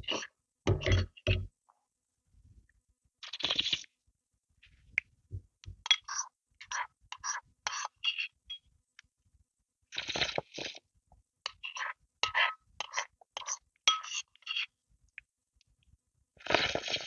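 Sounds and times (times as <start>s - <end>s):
spoon scraping a ceramic bowl: 5.9s - 8.6s, 11.4s - 14.8s.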